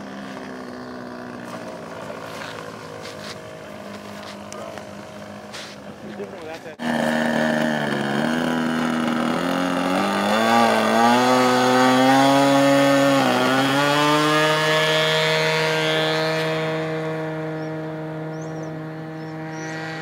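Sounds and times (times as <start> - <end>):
model plane engine running: 0.0 - 11.8.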